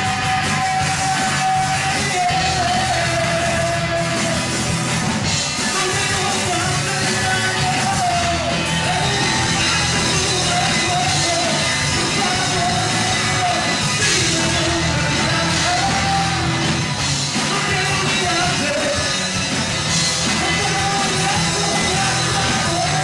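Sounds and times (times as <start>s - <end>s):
man singing: 0.0s - 4.7s, 5.3s - 23.0s
rock band playing live: 0.0s - 23.0s.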